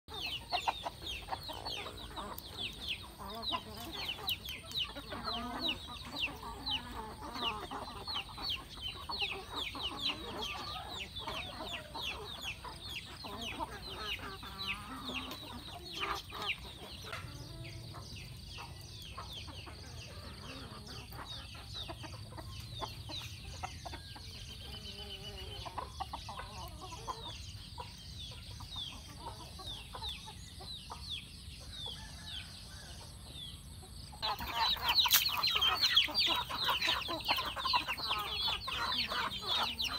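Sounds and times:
chickens clucking: 0.1 - 39.9.

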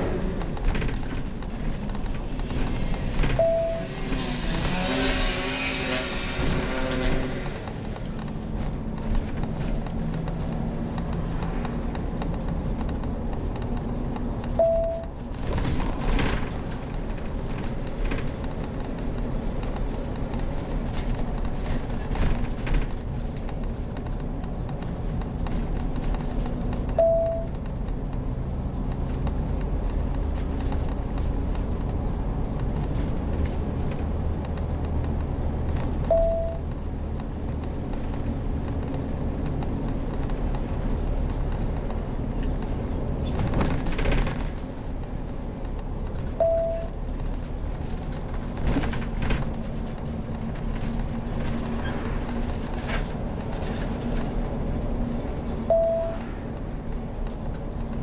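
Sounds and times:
motorhome engine running: 0.0 - 58.0
road noise: 0.0 - 58.0
short single-pitch beeps: 3.4 - 3.9, 14.6 - 15.1, 27.0 - 27.5, 36.1 - 36.6, 46.4 - 46.9, 55.7 - 56.2.

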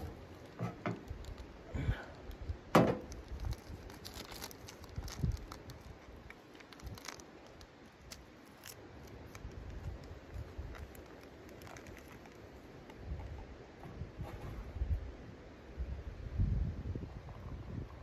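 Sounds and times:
packet rustling and crinkling: 0.0 - 13.3.

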